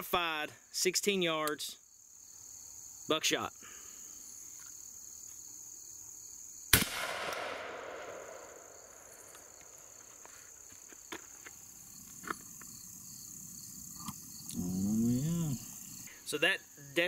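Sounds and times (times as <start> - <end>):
high insect drone: 1.8 - 6.7, 7.8 - 17.0
shotgun shot echoing: 6.7 - 9.5.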